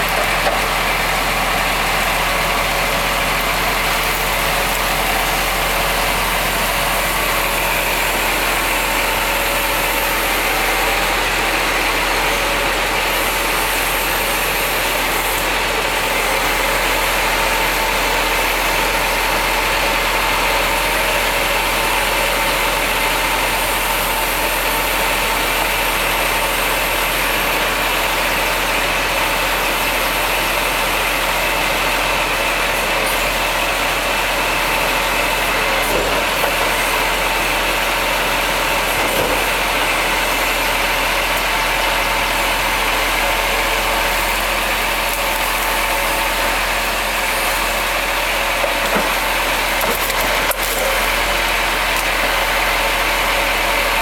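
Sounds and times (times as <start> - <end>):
truck diesel engine running: 0.0 - 54.0.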